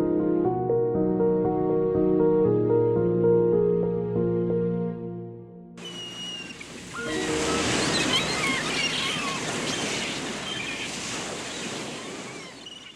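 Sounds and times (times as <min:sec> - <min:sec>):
waves washing onto a beach: 0:05.8 - 0:12.9
wind: 0:05.8 - 0:12.9.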